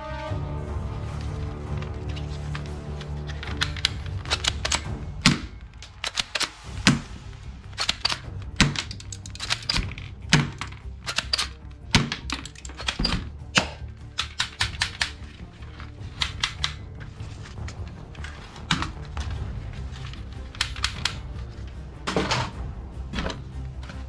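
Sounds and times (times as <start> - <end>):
background music: 0.0 - 24.0
plastic toy gun clicking: 3.4 - 6.6, 7.8 - 16.8, 20.5 - 21.2.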